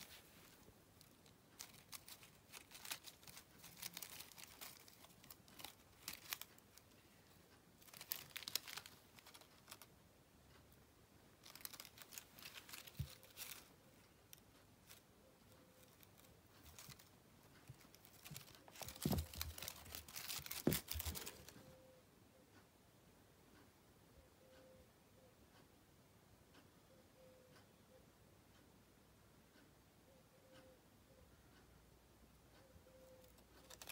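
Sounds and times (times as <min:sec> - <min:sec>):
foil ball toy crinkling: 0:00.0 - 0:09.9, 0:11.4 - 0:15.0, 0:15.8 - 0:21.6, 0:33.2 - 0:33.9.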